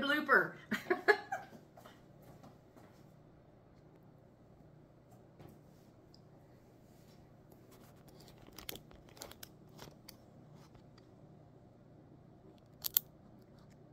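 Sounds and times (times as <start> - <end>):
low room hum: 0.0 - 13.9
phone handling clicks and rustles: 7.8 - 11.1.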